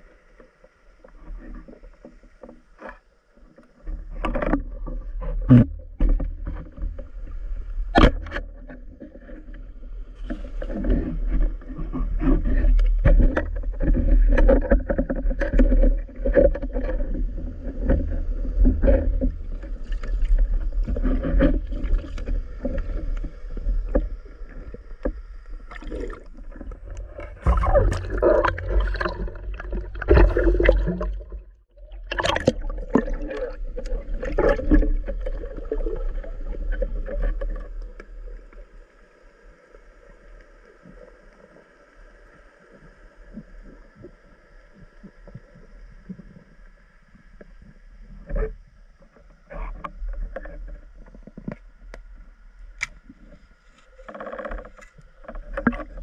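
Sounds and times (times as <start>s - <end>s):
water splashing and sloshing: 0.0s - 56.0s
heavy low rumble: 26.3s - 31.7s.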